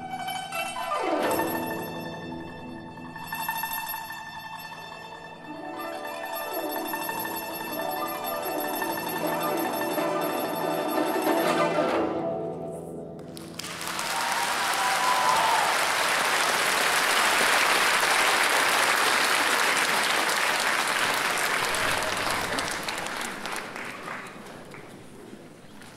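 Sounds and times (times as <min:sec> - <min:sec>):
audience applauding: 0:13.2 - 0:25.3.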